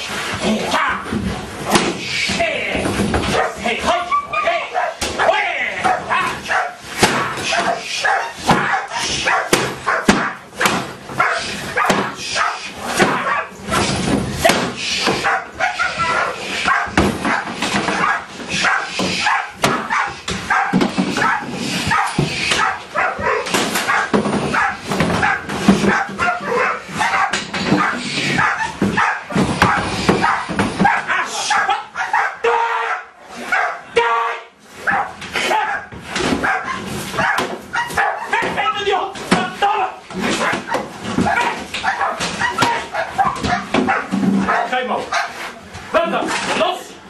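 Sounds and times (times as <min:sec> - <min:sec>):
large dog barking: 0:03.3 - 0:06.8, 0:07.4 - 0:10.4, 0:11.2 - 0:13.9, 0:15.2 - 0:33.9, 0:34.8 - 0:38.7, 0:40.3 - 0:45.4.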